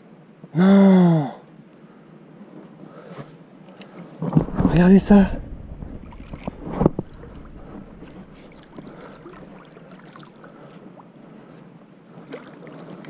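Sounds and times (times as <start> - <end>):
water swirling and lapping: 4.0 - 13.0
wind on microphone: 4.2 - 9.8
loud thump: 4.3 - 9.6.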